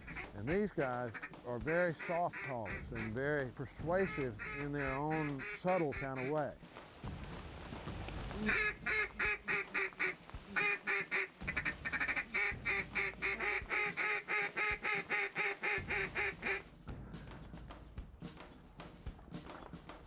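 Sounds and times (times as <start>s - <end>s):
duck calls quacking: 0.0s - 6.6s, 8.3s - 16.7s.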